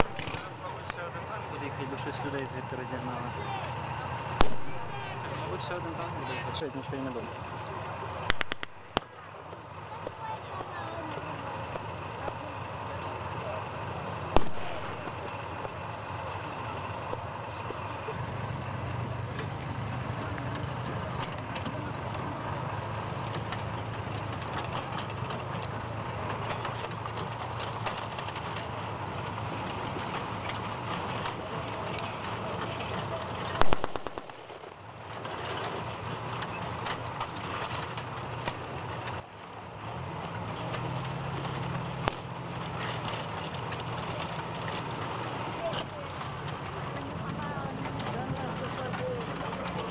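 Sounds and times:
sharp crack: 0:00.0 - 0:02.7, 0:03.6 - 0:05.7, 0:08.2 - 0:10.8, 0:14.2 - 0:16.0, 0:23.2 - 0:39.2, 0:40.7 - 0:46.2
jeep engine running: 0:00.0 - 0:49.9
outdoor background noise: 0:00.0 - 0:49.9
faint gunfire pops: 0:04.4 - 0:04.8, 0:08.3 - 0:09.1, 0:14.4 - 0:14.7, 0:33.6 - 0:34.4.

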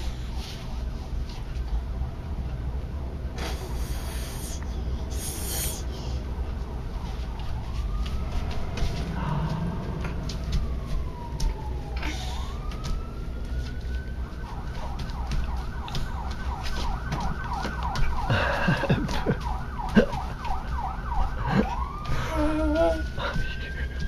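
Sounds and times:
siren wailing and yelping: 0:05.0 - 0:24.0.

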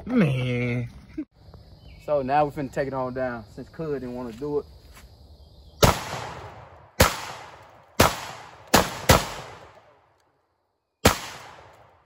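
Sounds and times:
shotgun shots with echo: 0:05.8 - 0:09.9, 0:11.0 - 0:12.0.

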